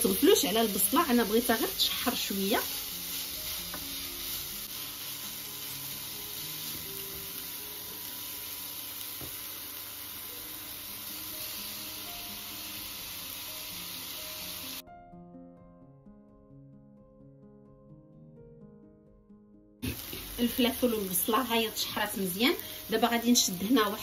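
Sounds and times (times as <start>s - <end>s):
vegetables sizzling in frying pan: 0.0s - 14.8s, 19.8s - 24.0s
soft background music: 0.0s - 24.0s.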